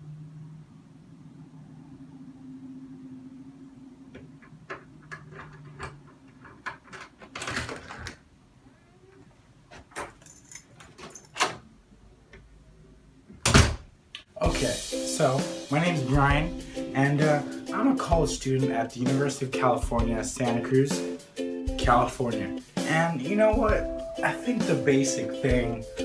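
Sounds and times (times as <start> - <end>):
keys jangling in lock: 10.0 - 11.6.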